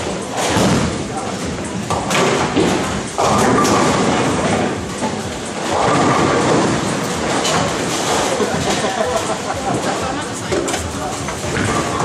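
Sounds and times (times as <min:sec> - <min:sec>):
bowling balls rumbling down lanes: 0:00.0 - 0:12.0
bowling pins clattering: 0:00.1 - 0:12.0.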